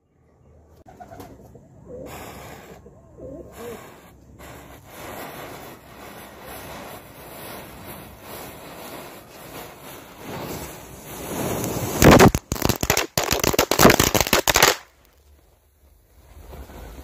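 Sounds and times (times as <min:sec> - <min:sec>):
matchsticks burning with hissing: 0:02.1 - 0:14.9
firecracker fizzing and crackling: 0:02.1 - 0:17.0.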